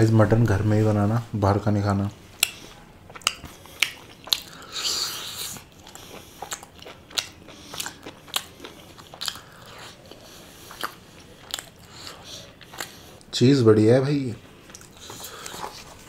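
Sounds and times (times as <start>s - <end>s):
person chewing crunchy food: 2.4s - 13.3s, 14.6s - 16.0s.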